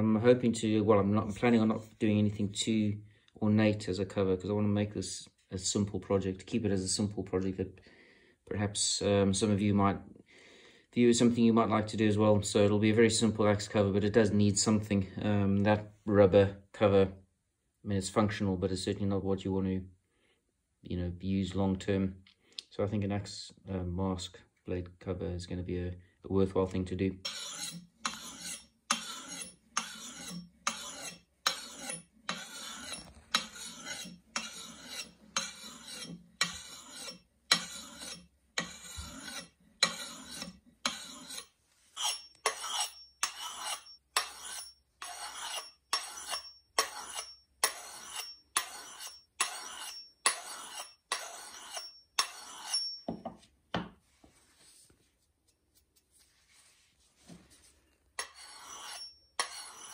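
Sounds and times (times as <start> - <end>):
sharpening stone rasping on blade: 27.2 - 53.1, 58.2 - 59.9.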